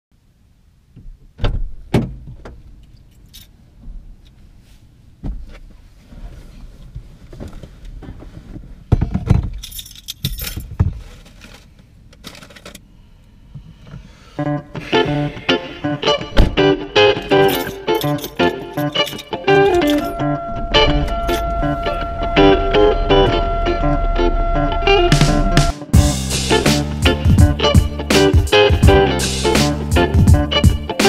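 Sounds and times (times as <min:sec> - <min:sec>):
knocks and thumps from car seat: 0:01.0 - 0:02.6, 0:05.2 - 0:05.8, 0:07.0 - 0:09.6, 0:16.2 - 0:16.7
keys jingling: 0:09.6 - 0:10.8, 0:17.3 - 0:20.3.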